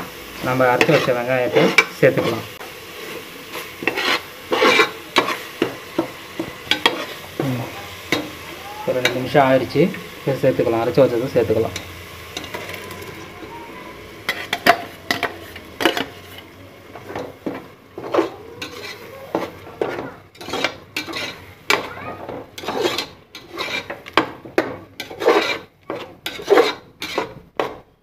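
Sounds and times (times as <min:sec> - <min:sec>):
light sizzle: 0:00.0 - 0:28.0
metal spoon scraping pot: 0:00.7 - 0:02.4, 0:03.5 - 0:08.4, 0:11.6 - 0:13.3, 0:14.2 - 0:28.0.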